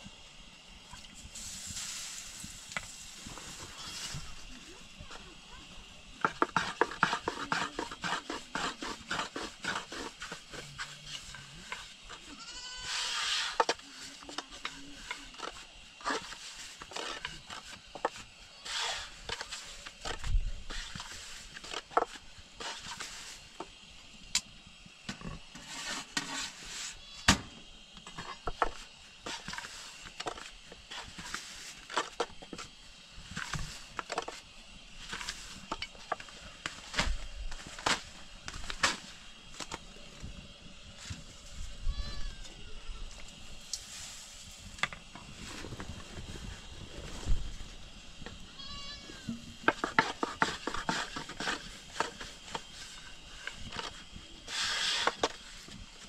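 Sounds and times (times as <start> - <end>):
livestock bleating: 12.3 - 13.1, 48.6 - 49.3.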